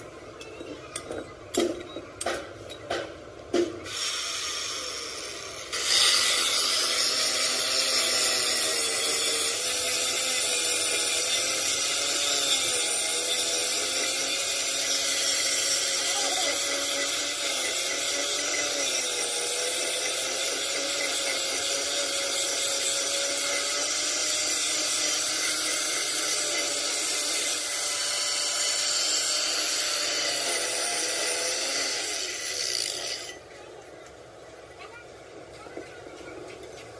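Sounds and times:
power tool motor whine: 3.9s - 33.4s.

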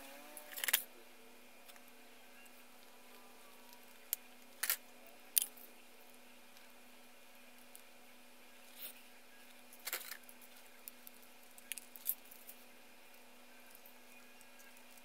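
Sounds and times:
plastic parts clicking and rattling: 0.2s - 0.9s, 9.7s - 12.6s.

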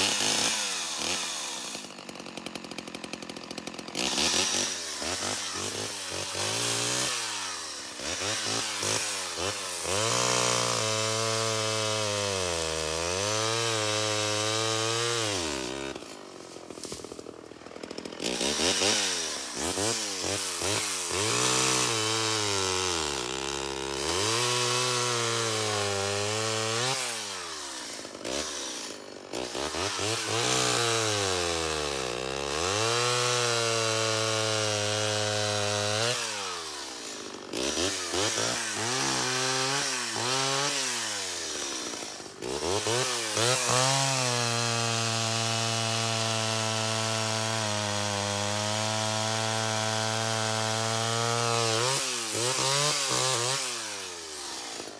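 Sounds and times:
chainsaw cutting log: 0.0s - 54.9s.

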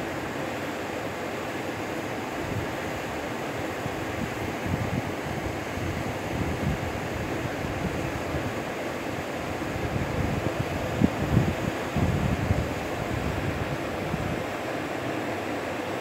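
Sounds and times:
wind buffeting microphone: 9.8s - 14.4s.

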